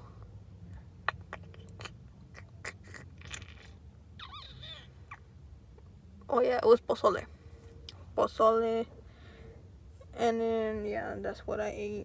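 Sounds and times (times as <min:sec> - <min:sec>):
low rumble in car cabin: 0:00.0 - 0:12.0
mouth clicks and lip smacks: 0:00.7 - 0:05.3.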